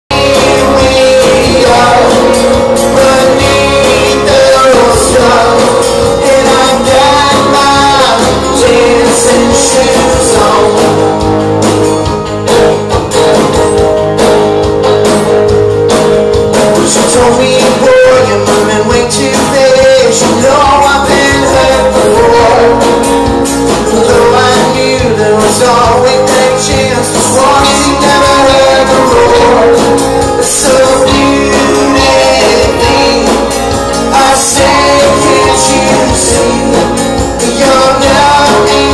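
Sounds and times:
rock band playing: 0:00.0 - 0:38.9
man singing: 0:00.1 - 0:11.4, 0:16.7 - 0:38.9.

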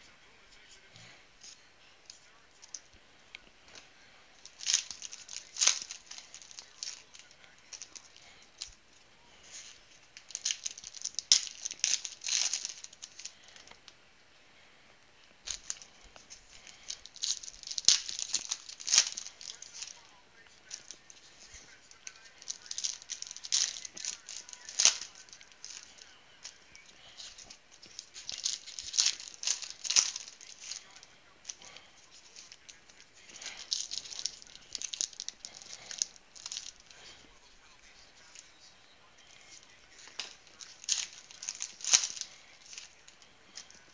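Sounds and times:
wrappers crinkling and tearing: 0:00.2 - 0:14.0, 0:15.4 - 0:43.9
cards flicking: 0:02.6 - 0:13.8, 0:15.3 - 0:37.3.

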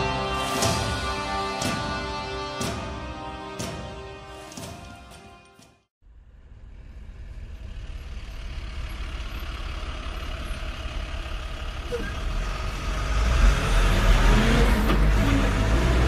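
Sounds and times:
road noise: 0:00.0 - 0:16.0
vehicle engine rumble: 0:06.0 - 0:16.0.

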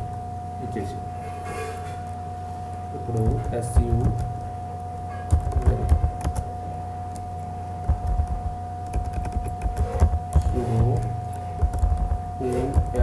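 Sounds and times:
electrical hum: 0:00.0 - 0:13.0
keyboard key clicks: 0:07.8 - 0:13.0.

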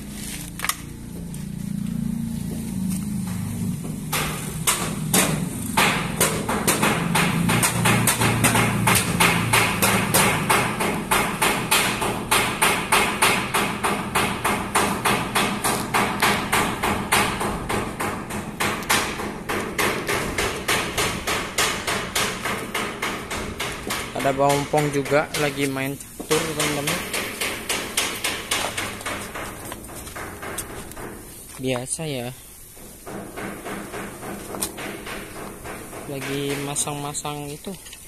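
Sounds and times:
hammer on sheet metal: 0:03.3 - 0:31.3, 0:32.8 - 0:37.1.

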